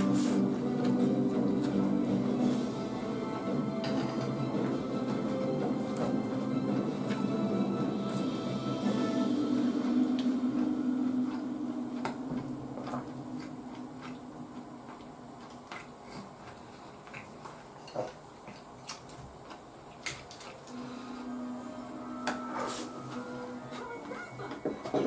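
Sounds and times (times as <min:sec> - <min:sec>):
background music: 0:00.0 - 0:14.9, 0:20.7 - 0:25.0
chewing: 0:09.6 - 0:20.8.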